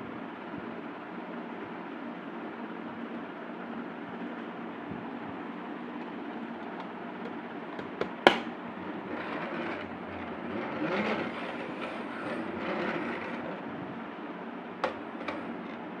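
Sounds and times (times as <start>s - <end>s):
plastic wheels rolling on wooden floor: 6.7s - 13.7s, 14.8s - 15.8s.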